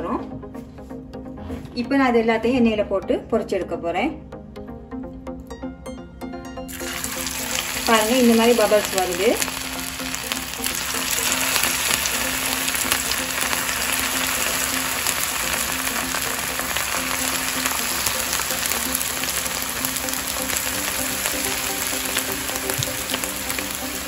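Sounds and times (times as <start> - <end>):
faint background music: 0.0 - 24.0
oil sizzling in a pan: 6.7 - 24.0.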